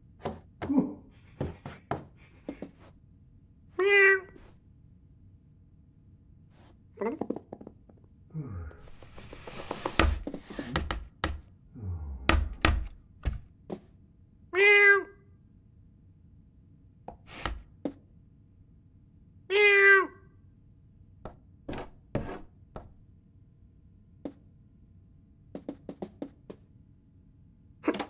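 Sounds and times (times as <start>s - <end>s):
cartoon thumps and knocks: 0.2s - 2.7s, 7.0s - 8.0s, 9.7s - 11.5s, 12.2s - 13.5s
cartoon cat meows: 3.8s - 4.4s, 14.6s - 15.2s, 19.5s - 20.3s.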